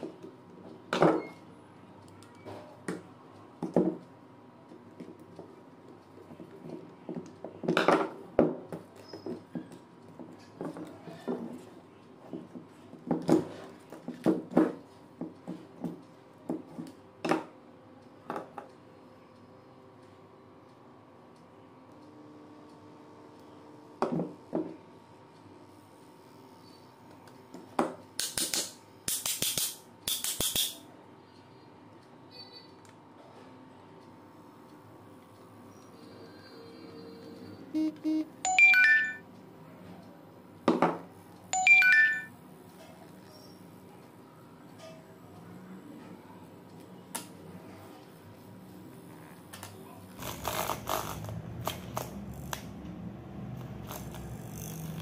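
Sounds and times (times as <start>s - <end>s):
short buzzy beeps: 36.6s - 39.2s
ringing phone chime: 37.8s - 39.2s, 41.5s - 42.3s.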